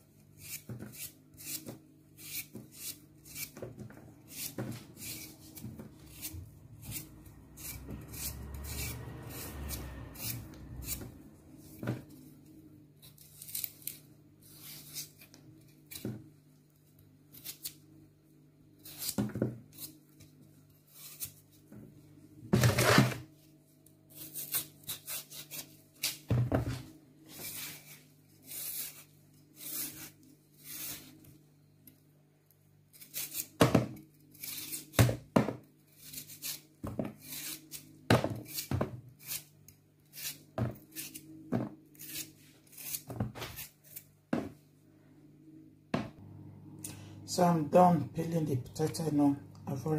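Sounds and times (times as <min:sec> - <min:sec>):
knife scraping potato skin: 0:00.1 - 0:12.3, 0:13.0 - 0:16.3, 0:17.3 - 0:17.8, 0:18.8 - 0:21.6, 0:22.6 - 0:23.2, 0:24.1 - 0:26.7, 0:27.3 - 0:31.4, 0:32.9 - 0:44.1.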